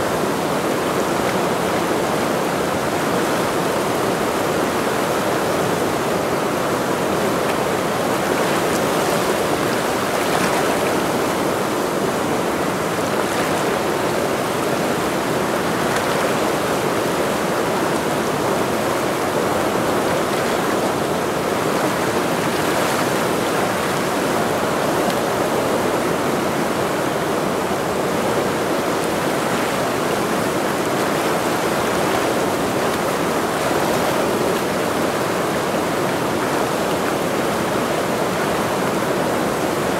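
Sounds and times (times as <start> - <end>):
rushing river water: 0.0 - 39.9.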